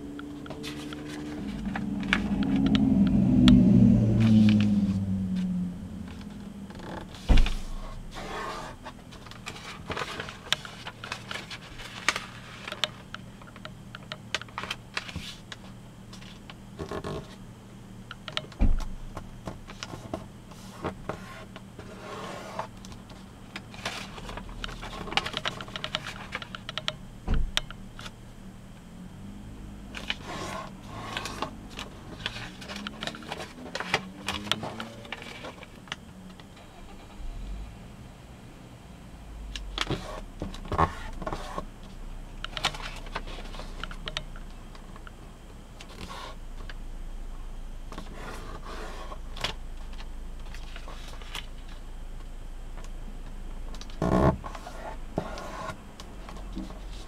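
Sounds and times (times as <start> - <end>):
low hum: 0.0 - 15.0, 15.6 - 45.8
paper crinkling and rustling: 7.1 - 13.1, 21.8 - 26.6, 29.9 - 35.8, 42.6 - 44.0, 48.0 - 51.6.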